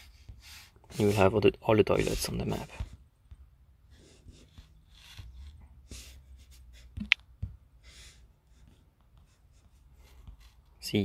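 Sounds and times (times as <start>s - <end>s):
soft breaths: 7.6s - 10.8s.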